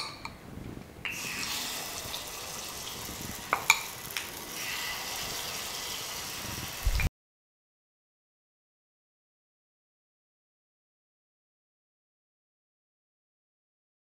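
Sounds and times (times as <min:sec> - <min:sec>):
batter sizzling in hot oil: 0:01.1 - 0:07.1
low thump: 0:06.9 - 0:07.1.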